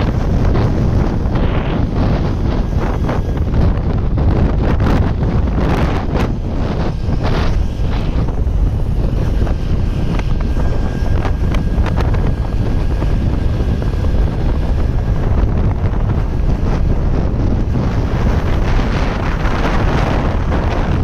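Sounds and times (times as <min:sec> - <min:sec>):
faint thin whine: 0:00.0 - 0:21.0
wind buffeting microphone: 0:00.0 - 0:21.0.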